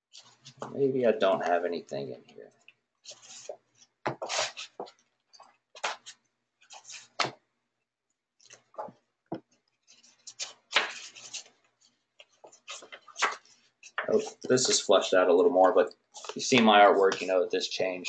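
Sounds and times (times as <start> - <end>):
paper pages rustling: 9.8 - 14.8.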